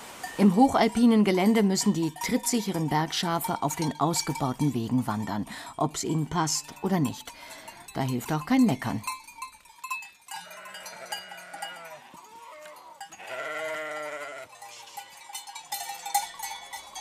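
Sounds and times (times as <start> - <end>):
bells tinkling: 0.2 - 17.0
sheep bleating: 10.4 - 15.2.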